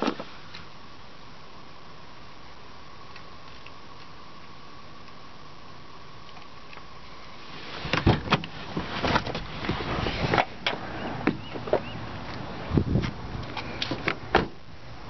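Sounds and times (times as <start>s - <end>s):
rustling: 6.4s - 10.8s.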